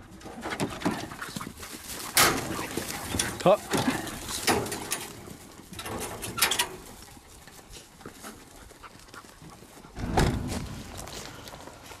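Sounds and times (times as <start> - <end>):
dogs jumping from metal crate: 2.0 - 5.2.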